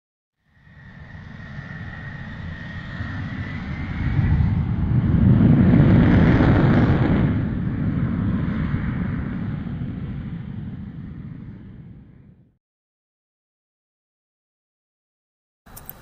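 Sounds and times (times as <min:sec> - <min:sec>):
jet fighter engines roaring: 0:00.5 - 0:12.5.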